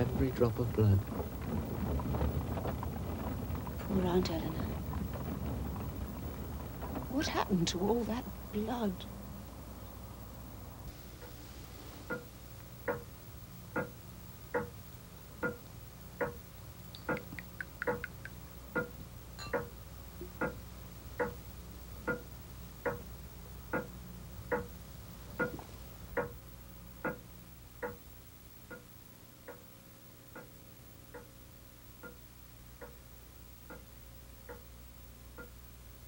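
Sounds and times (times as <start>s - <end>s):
low hum: 0.0s - 27.6s
clock ticking: 12.1s - 13.1s, 13.7s - 14.8s, 15.4s - 16.4s, 17.0s - 20.6s, 21.2s - 21.4s, 22.0s - 23.1s, 23.7s - 23.9s, 24.5s - 24.7s, 25.4s - 25.6s, 26.2s - 26.4s, 27.0s - 27.2s, 27.8s - 28.0s, 28.7s - 29.6s, 30.3s - 30.5s, 32.0s - 32.2s, 33.6s - 34.7s
faint high ring: 19.4s - 19.6s.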